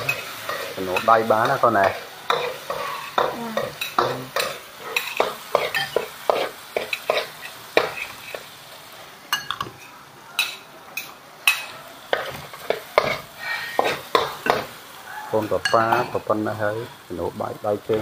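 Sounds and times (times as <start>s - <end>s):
utensil scraping a pan: 0.0s - 8.4s
beef sizzling in a wok: 0.0s - 18.0s.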